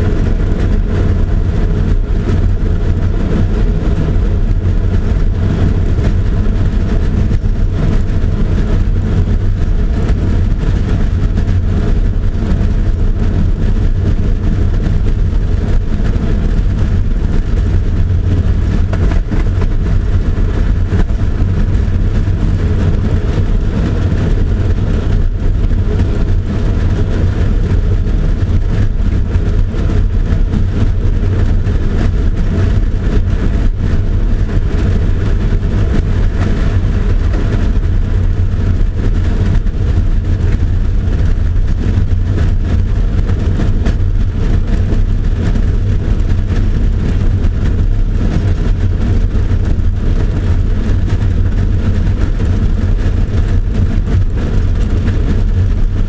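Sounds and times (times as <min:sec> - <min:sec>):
low mechanical rumble: 0:00.0 - 0:56.0.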